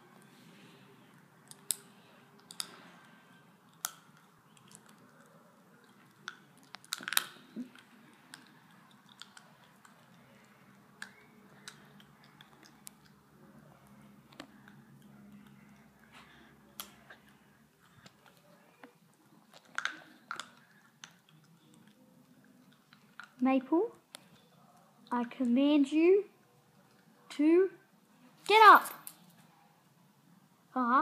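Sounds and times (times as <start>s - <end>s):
dog chewing and gnawing: 3.7s - 10.2s.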